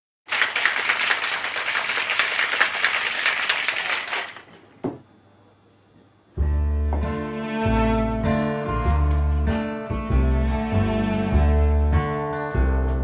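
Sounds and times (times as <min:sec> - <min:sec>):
ice rattling in a shaker: 0:00.3 - 0:04.5.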